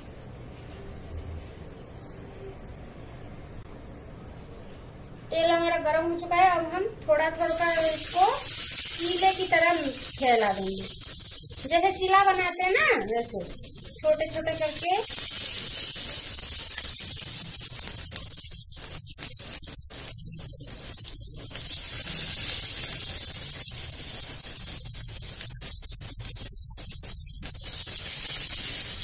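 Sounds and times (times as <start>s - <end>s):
hot oil sizzling in a pan: 7.4s - 29.0s.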